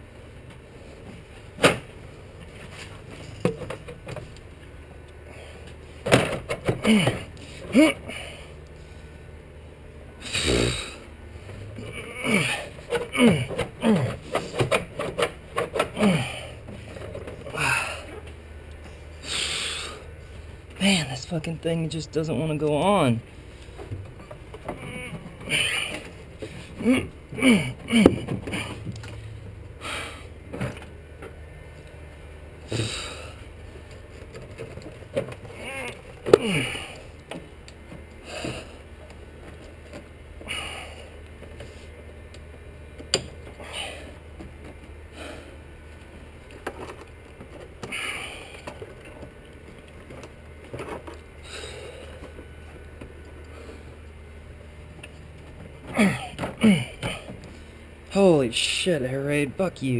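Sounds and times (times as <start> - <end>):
low steady hum: 0.0 - 59.9
person grunting: 6.8 - 8.4, 10.2 - 11.0, 11.8 - 14.2, 15.9 - 16.6, 17.5 - 18.1, 24.8 - 26.0, 26.8 - 28.9, 32.7 - 33.4, 35.6 - 37.1, 55.9 - 57.3.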